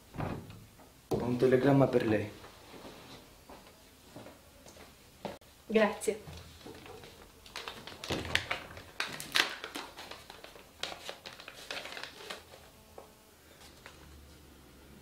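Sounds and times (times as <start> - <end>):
paper rustling and crinkling: 6.4 - 12.7.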